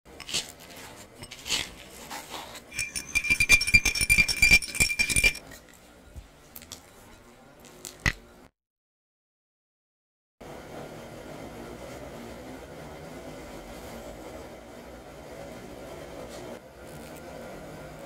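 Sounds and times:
spoon scraping in glass bowl: 0.1 - 5.7
wire whisk clattering in bowl: 2.7 - 5.4.

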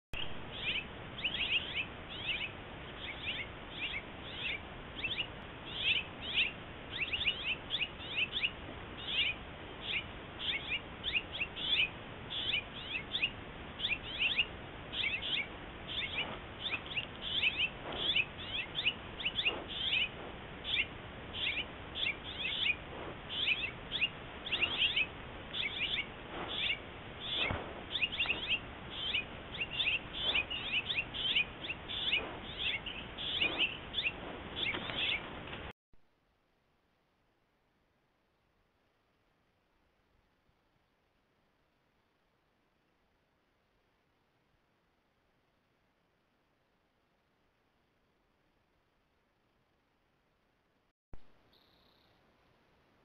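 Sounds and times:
small songbirds chirping: 0.2 - 35.7, 51.2 - 52.6
faint low thuds: 15.9 - 35.7.

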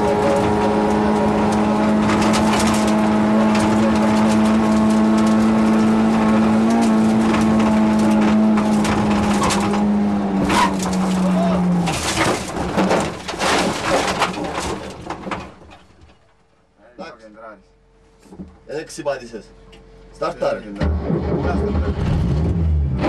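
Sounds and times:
car engine at steady revs: 0.0 - 11.8
gravel striking car: 0.0 - 16.4.

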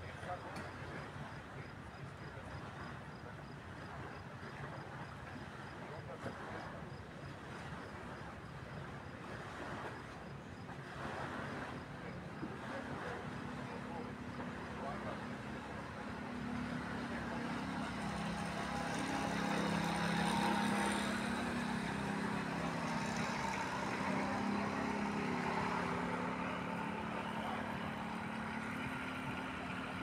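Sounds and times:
low mechanical hum: 9.7 - 30.0.

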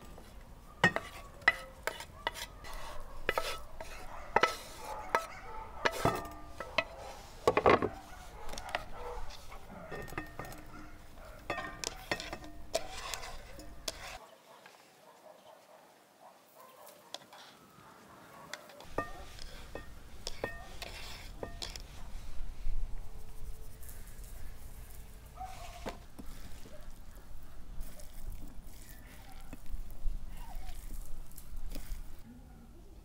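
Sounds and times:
utensils clinking on metal pots: 0.8 - 14.2, 18.9 - 22.0.

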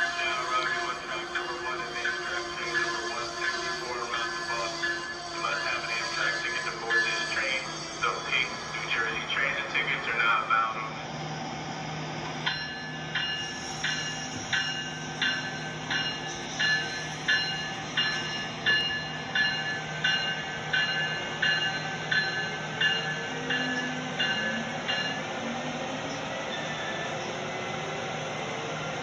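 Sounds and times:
bell dinging: 12.5 - 25.3.

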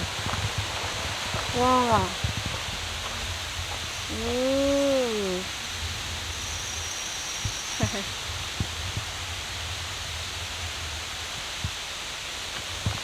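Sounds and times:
forest hiss: 0.0 - 13.0
person's drawn-out voice: 1.6 - 2.2, 4.1 - 5.5.

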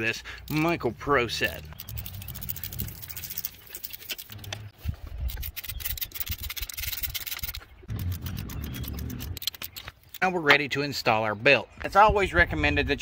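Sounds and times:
hand ratchet clicking: 5.3 - 10.2.

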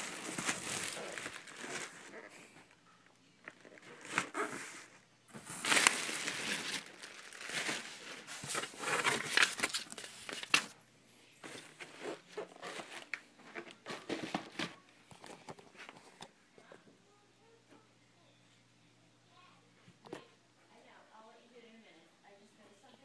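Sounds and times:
paper crinkling and rustling: 0.0 - 2.8, 3.4 - 10.8, 11.4 - 16.3
handling noises: 0.0 - 10.8, 11.4 - 16.8.

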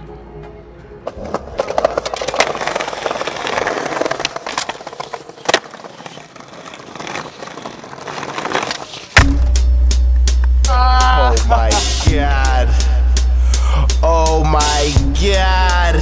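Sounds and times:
skateboard wheels rolling on concrete: 0.9 - 10.6
skateboard clacking: 1.0 - 9.3.

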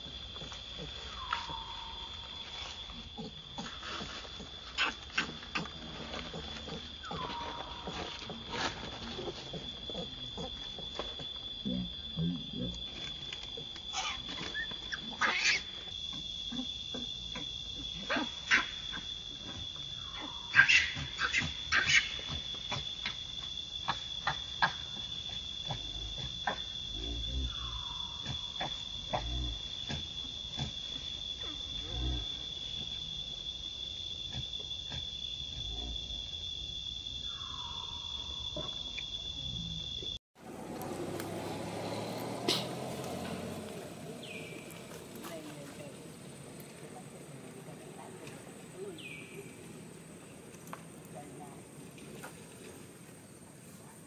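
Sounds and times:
insects droning: 0.0 - 54.0
baby monkey squealing: 13.9 - 15.7.

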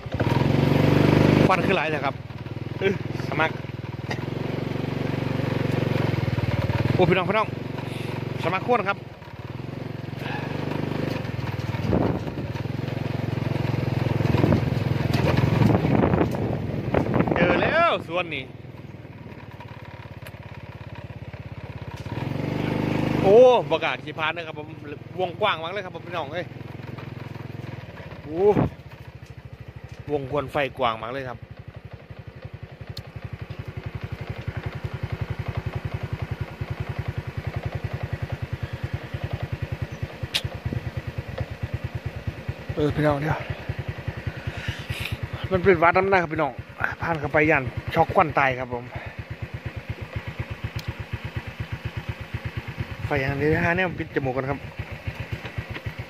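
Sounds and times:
small motorcycle engine running: 0.0 - 56.0
sharp click: 40.2 - 40.6.

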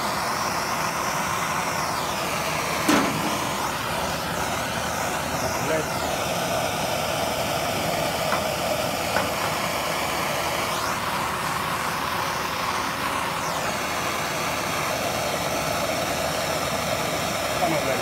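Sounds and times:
blowtorch flame rushing: 0.0 - 18.0.

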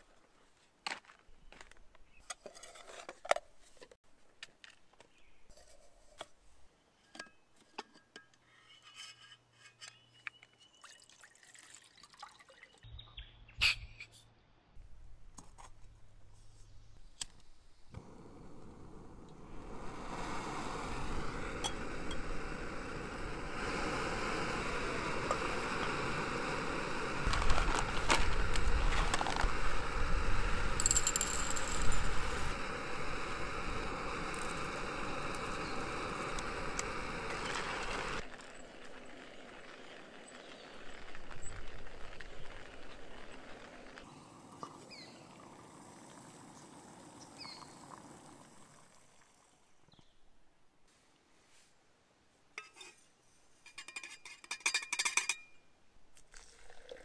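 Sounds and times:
gas stove hissing: 17.9 - 38.2
metal cookware clinks: 53.7 - 55.6.

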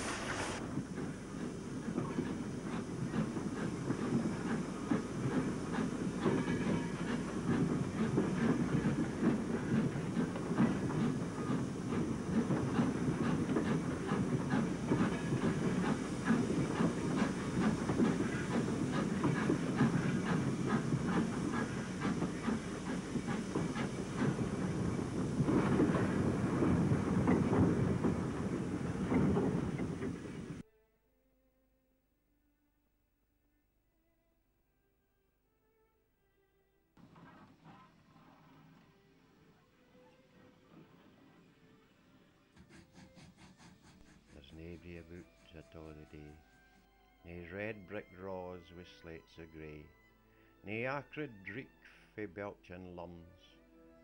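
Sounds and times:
steam hiss: 0.0 - 30.6, 37.0 - 49.1
train rumbling: 0.0 - 30.6, 37.0 - 46.6, 47.2 - 49.9
wheels clicking on track: 0.0 - 30.6.

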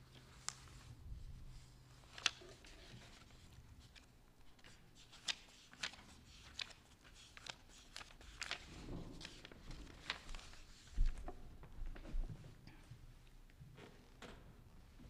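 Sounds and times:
quiet footsteps: 8.8 - 15.0.

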